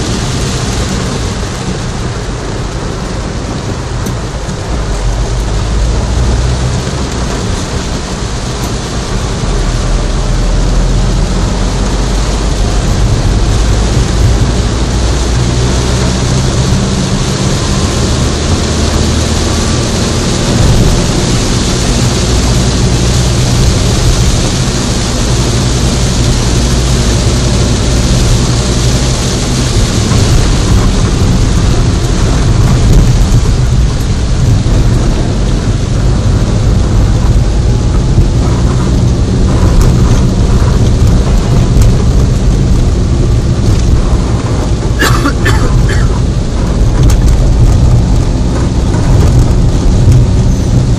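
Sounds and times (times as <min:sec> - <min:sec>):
engine and road noise: 0:00.0 - 0:50.9
heavy rain on car roof: 0:00.0 - 0:50.9.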